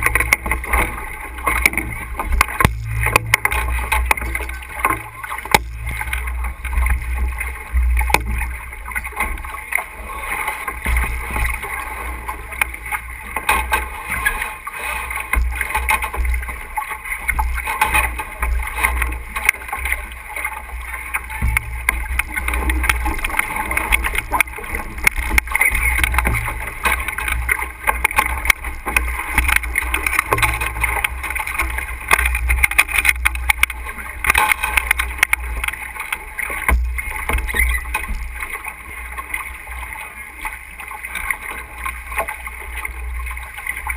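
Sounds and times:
knocks and clicks: 0.0s - 7.0s, 7.8s - 9.4s, 21.1s - 38.3s
water rushing along hull: 0.0s - 43.9s.

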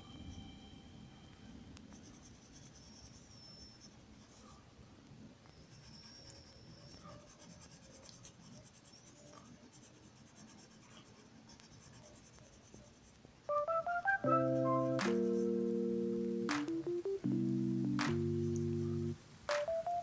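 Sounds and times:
pencil scratching on paper: 2.0s - 4.6s, 5.7s - 13.5s
electronic keyboard music: 13.5s - 20.0s.

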